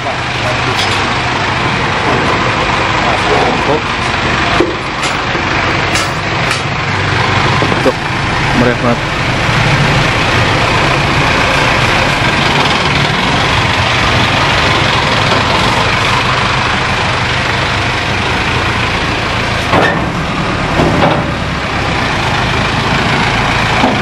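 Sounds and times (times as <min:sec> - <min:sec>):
bus engine running: 0:00.0 - 0:24.0.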